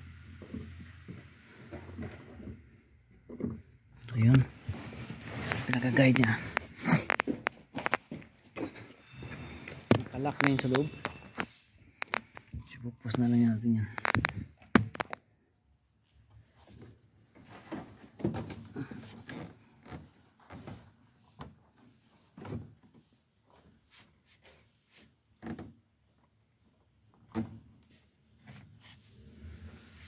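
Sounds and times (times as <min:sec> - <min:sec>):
clunks and knocks of car parts: 0:00.2 - 0:03.8, 0:06.4 - 0:12.6, 0:14.0 - 0:15.2, 0:17.4 - 0:20.9.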